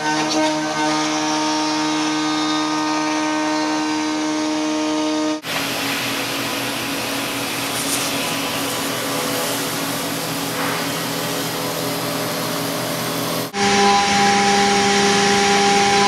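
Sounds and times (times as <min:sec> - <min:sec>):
router spindle cutting fiberglass: 0:00.0 - 0:16.0
router spindle milling metal: 0:05.4 - 0:13.5.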